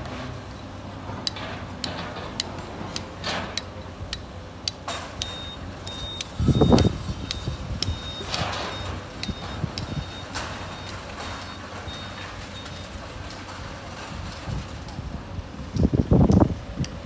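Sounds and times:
short high beeps: 0:05.2 - 0:12.9.

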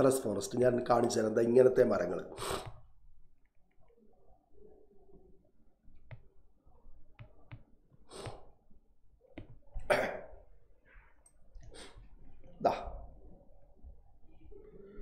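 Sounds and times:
man coughing: 0:09.8 - 0:10.4.

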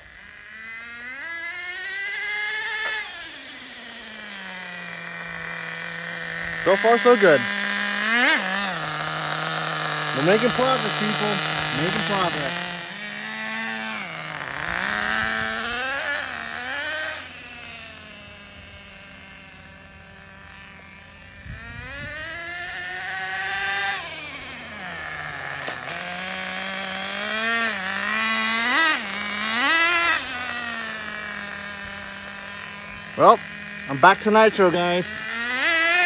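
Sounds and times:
small nitro engine revving: 0:00.0 - 0:36.0.

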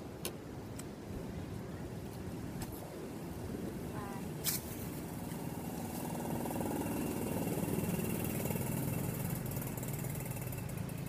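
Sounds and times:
engine running steadily: 0:03.8 - 0:11.0.

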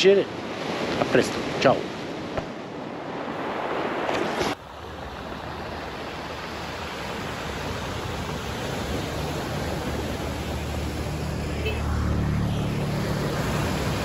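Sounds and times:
surf washing over pebbles: 0:03.0 - 0:11.3
low hum: 0:10.2 - 0:14.0.

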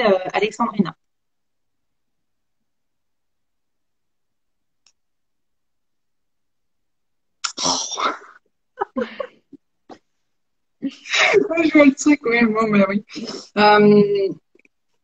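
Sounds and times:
woman laughing: 0:08.8 - 0:09.6.

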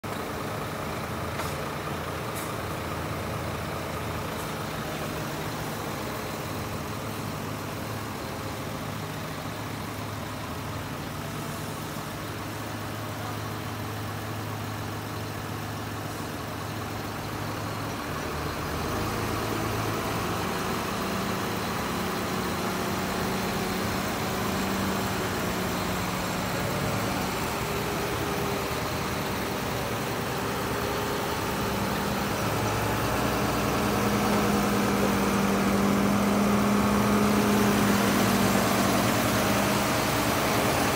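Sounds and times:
diesel engines running: 0:00.0 - 0:40.9.

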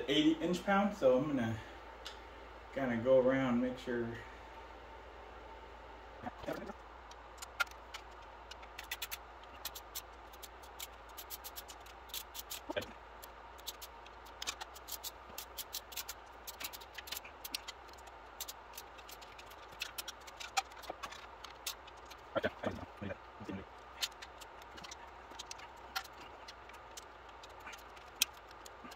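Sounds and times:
torque wrench ratcheting: 0:07.5 - 0:12.8.

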